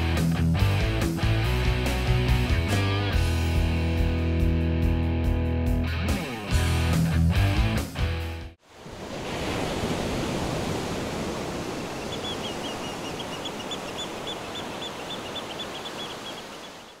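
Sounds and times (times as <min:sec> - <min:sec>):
rushing outdoor ambience: 0:08.7 - 0:17.0
small bird chirping: 0:12.0 - 0:17.0.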